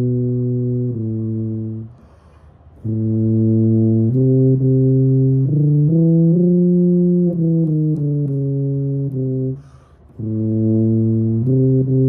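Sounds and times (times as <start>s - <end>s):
tuba playing held notes: 0.0s - 2.0s, 2.8s - 12.0s
quick breath: 1.9s - 2.7s, 9.6s - 10.2s.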